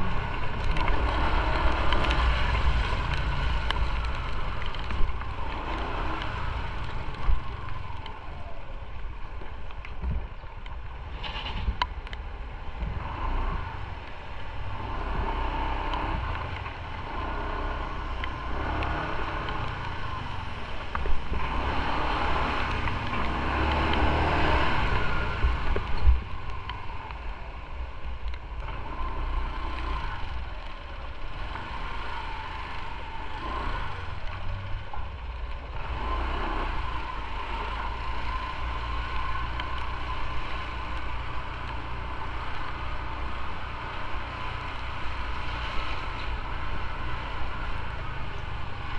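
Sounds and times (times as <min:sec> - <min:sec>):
wind noise on microphone: 0:08.6 - 0:36.8.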